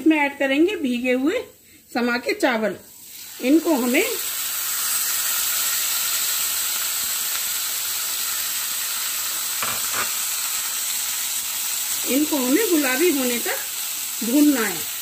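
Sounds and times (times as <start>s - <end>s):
rice sizzling in hot oil: 2.4s - 15.0s.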